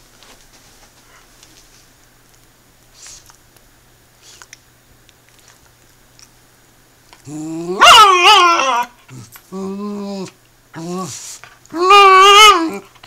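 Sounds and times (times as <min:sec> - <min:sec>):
dog whine-yowling: 0:07.2 - 0:13.0.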